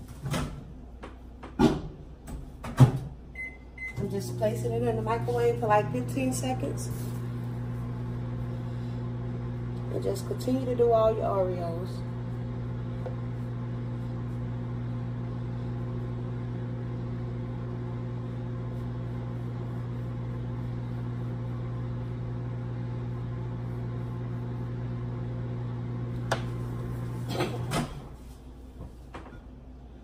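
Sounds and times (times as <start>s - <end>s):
microwave oven humming: 0.0s - 30.0s.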